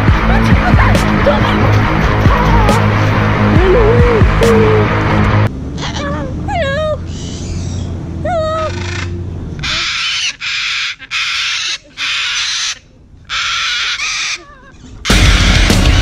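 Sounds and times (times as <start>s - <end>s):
cockatoo screeching: 5.7s - 6.3s, 7.0s - 16.0s.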